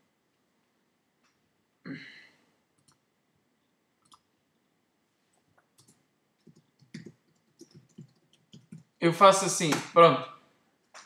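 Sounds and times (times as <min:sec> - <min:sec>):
faint keyboard typing clicks: 0:02.8 - 0:03.1, 0:04.0 - 0:04.3, 0:05.3 - 0:09.0.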